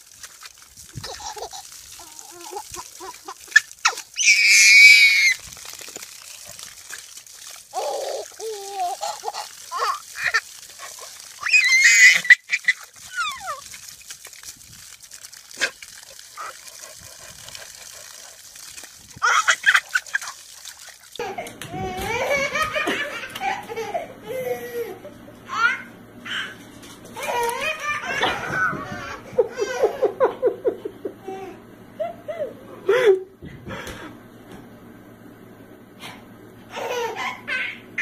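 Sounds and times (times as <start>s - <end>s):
baby shrieking with laughter: 2.0s - 5.4s, 11.4s - 13.7s.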